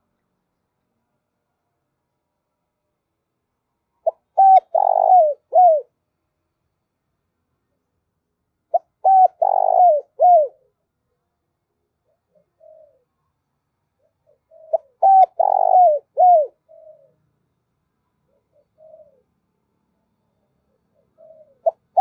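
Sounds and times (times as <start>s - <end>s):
dove cooing: 4.0s - 6.0s, 8.7s - 10.8s, 12.0s - 13.1s, 14.0s - 17.2s, 18.2s - 19.4s, 20.7s - 22.0s
faint soft coos: 4.0s - 6.0s, 8.8s - 11.2s, 11.8s - 13.4s, 14.0s - 17.2s, 18.2s - 19.4s, 20.0s - 22.0s.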